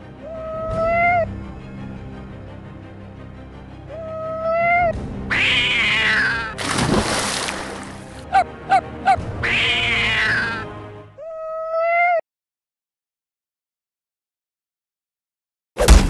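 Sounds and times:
low background music: 0:00.0 - 0:11.2
cartoon cat screeching: 0:09.4 - 0:10.6, 0:11.2 - 0:12.2.

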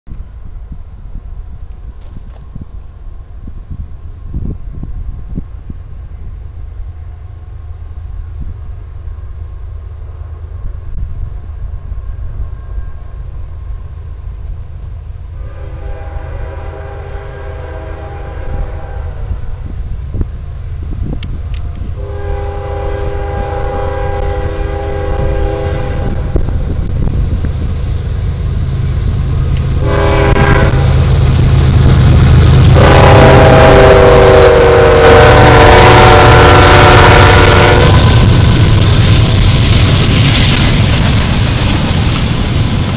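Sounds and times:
locomotive engine rumble: 0:00.1 - 0:42.9
train air horn blasts: 0:15.4 - 0:19.6, 0:22.0 - 0:26.5, 0:29.8 - 0:31.1, 0:32.6 - 0:38.2.

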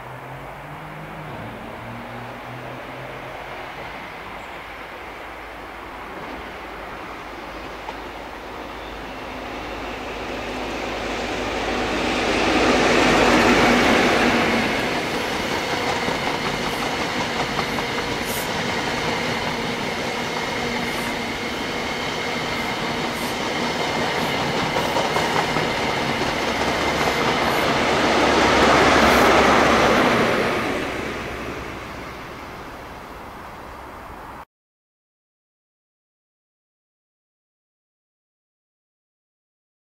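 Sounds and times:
diesel train passing at speed: 0:00.0 - 0:34.4
train wheel clicks: 0:14.8 - 0:21.3, 0:22.6 - 0:27.9.

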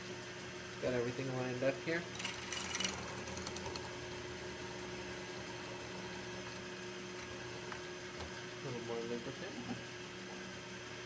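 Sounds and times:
drill press motor humming: 0:01.9 - 0:11.0.

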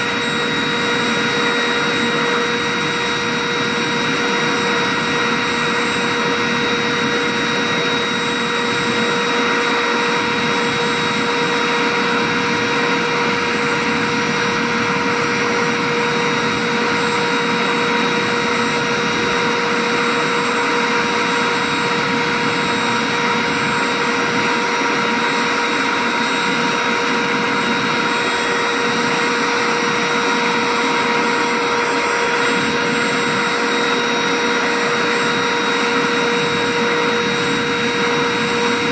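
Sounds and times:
gas turbine engine whine: 0:00.0 - 0:38.9.

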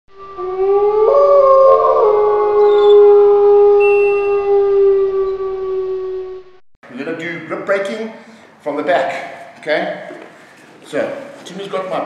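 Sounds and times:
wolf howling: 0:00.1 - 0:06.6
higher howling voices: 0:00.2 - 0:06.6.

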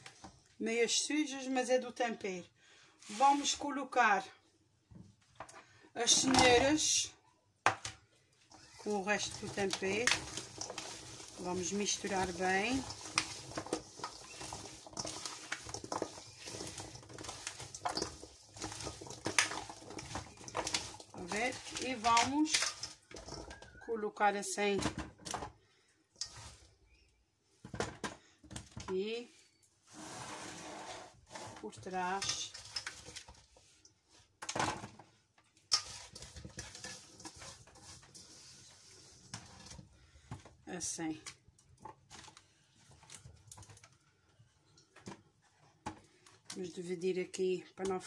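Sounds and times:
food handling noises: 0:08.4 - 0:23.9, 0:29.8 - 0:40.6, 0:41.3 - 0:46.6
carrots knocking in steel bowl: 0:08.8 - 0:23.6.

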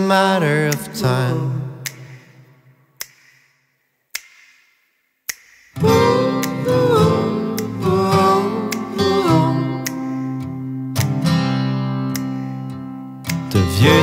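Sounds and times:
sharp clicks: 0:01.8 - 0:06.8
acoustic guitar strumming chords: 0:05.8 - 0:14.0
pitch-bending guitar melody: 0:05.8 - 0:14.0.

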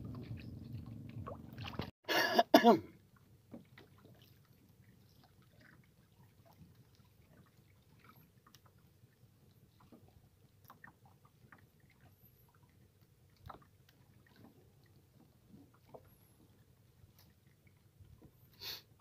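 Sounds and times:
man clearing his throat: 0:02.1 - 0:02.9.

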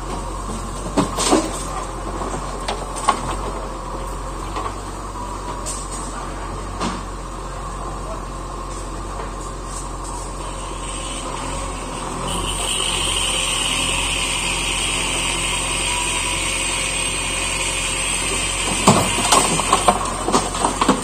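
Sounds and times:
diesel engine whining under load: 0:00.0 - 0:21.0
rubble clattering into truck bed: 0:00.1 - 0:03.7, 0:18.4 - 0:21.0.

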